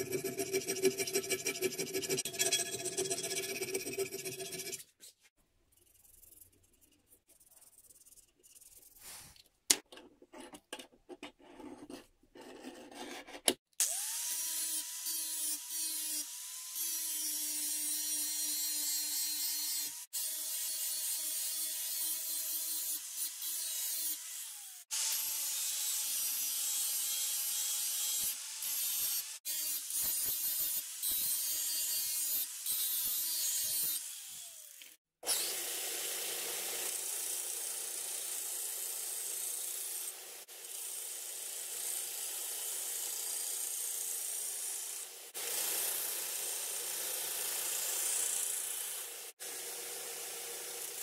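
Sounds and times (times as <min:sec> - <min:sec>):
angle grinder grinding metal: 0:00.0 - 0:04.9, 0:13.8 - 0:35.6
metal file rasping: 0:00.0 - 0:09.2.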